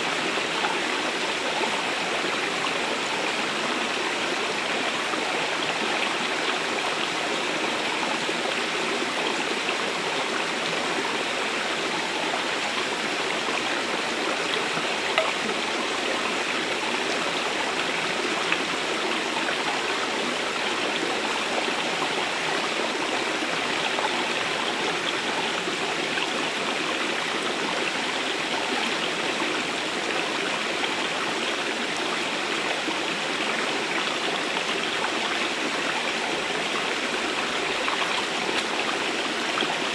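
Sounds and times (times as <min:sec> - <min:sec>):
stream rushing over stones: 0:00.0 - 0:39.9.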